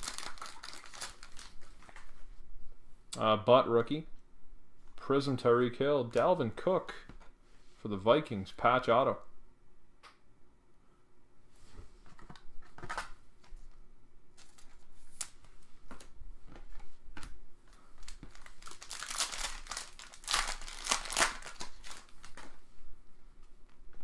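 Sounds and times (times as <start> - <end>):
plastic wrapping crinkling and tearing: 0.0 - 2.1, 18.0 - 22.6.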